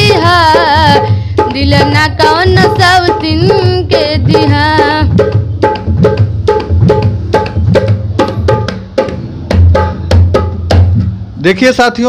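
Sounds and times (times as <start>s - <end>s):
deep drum booms: 0.0s - 11.4s.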